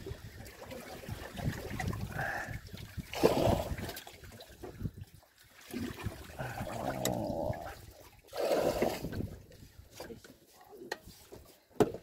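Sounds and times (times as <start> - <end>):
water splashing and trickling: 0.0 - 12.0
knocks on wooden boat: 11.8 - 12.0.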